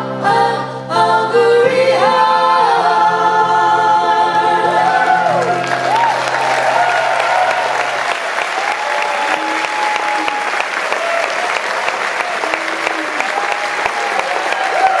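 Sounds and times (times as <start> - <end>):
audience cheering: 4.8 - 15.0
audience applauding: 4.9 - 15.0.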